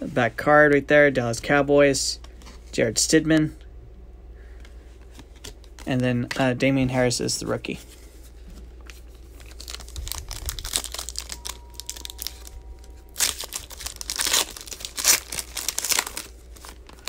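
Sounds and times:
foil card pack crinkling and tearing: 8.9s - 17.0s.

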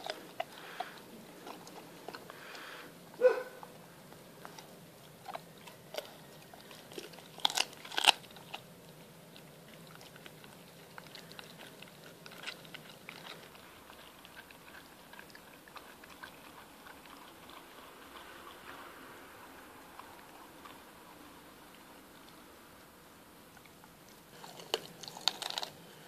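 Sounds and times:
dog crunching bone: 0.0s - 26.0s
dog gnawing clicks: 4.4s - 18.8s, 24.4s - 25.8s.

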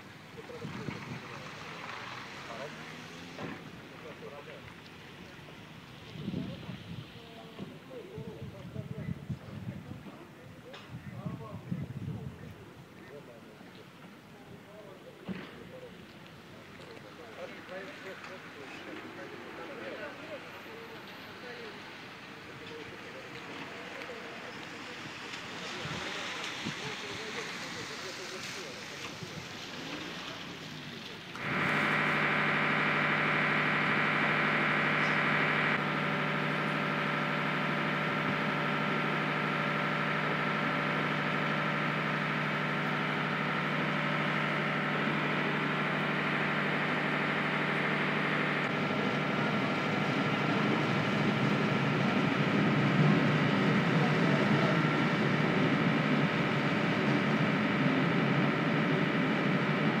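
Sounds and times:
boat engine drone: 14.2s - 60.0s.

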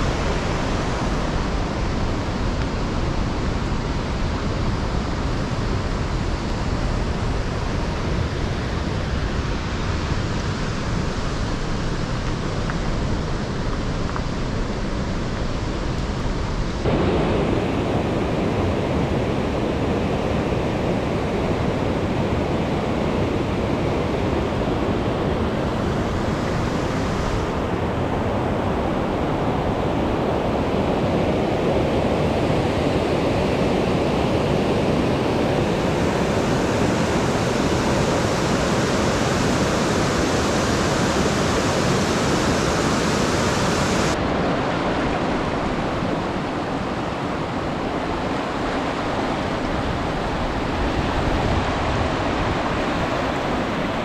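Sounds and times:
river rushing over rocks: 31.8s - 54.0s.

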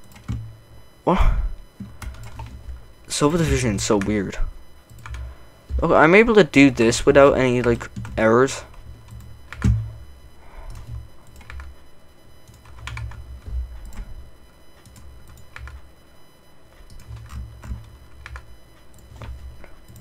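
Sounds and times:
keyboard and mouse clicks: 9.1s - 9.9s, 16.8s - 20.0s.

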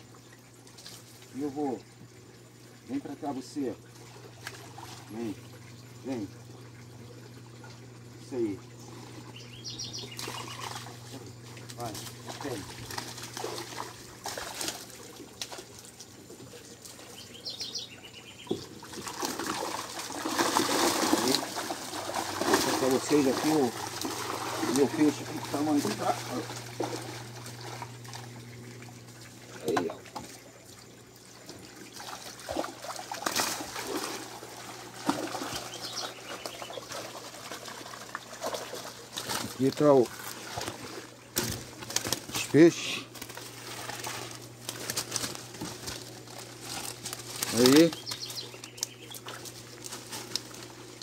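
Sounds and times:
steady low hum: 0.0s - 51.0s
water splashing and dripping: 2.0s - 8.1s, 10.0s - 17.4s, 18.5s - 51.0s
bird chirping: 8.8s - 11.3s, 17.0s - 18.7s, 35.5s - 36.9s, 47.5s - 49.4s.

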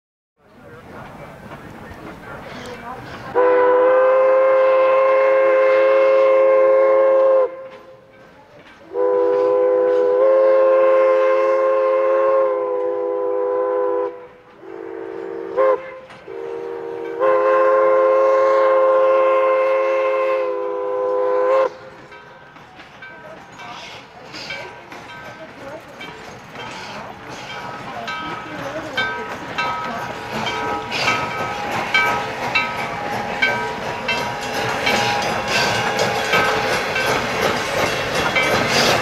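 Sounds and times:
steam locomotive whistle blasts: 3.3s - 8.1s, 8.9s - 22.0s, 33.1s - 37.2s.

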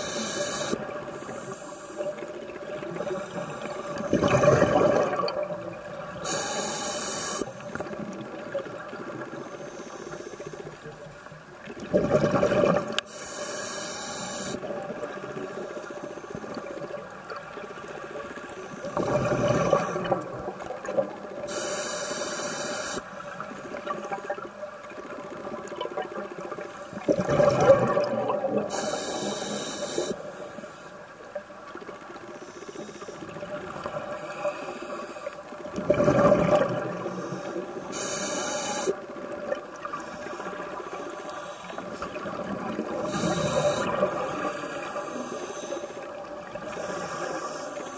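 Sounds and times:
regulator inhale hiss: 0.0s - 4.1s, 6.1s - 8.0s, 9.3s - 11.4s, 13.0s - 14.8s, 15.4s - 17.0s, 21.5s - 24.0s, 28.7s - 31.0s, 32.2s - 33.4s, 34.1s - 35.6s, 37.0s - 39.0s, 39.9s - 47.9s
exhaled bubbles rumbling: 2.4s - 6.2s, 11.7s - 13.1s, 18.9s - 21.5s, 23.7s - 28.7s, 35.7s - 37.3s.

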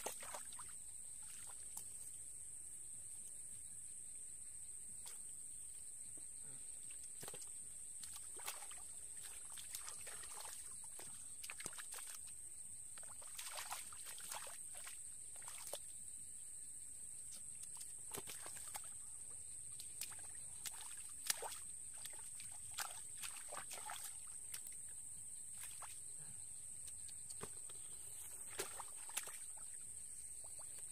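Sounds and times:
hands splashing in muddy water: 7.0s - 12.4s, 13.0s - 15.8s, 17.6s - 19.0s, 19.8s - 24.9s, 27.4s - 29.8s.

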